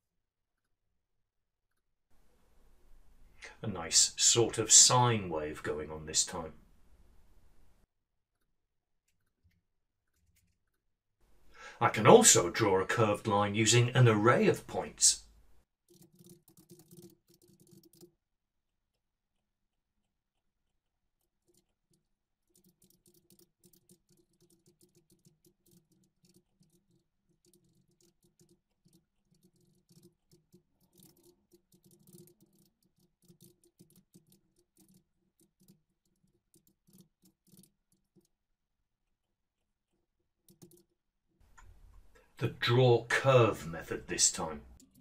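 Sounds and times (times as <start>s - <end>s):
computer keyboard typing: 15.9s - 18.1s, 20.6s - 38.4s, 40.5s - 40.9s, 44.8s - 45.0s.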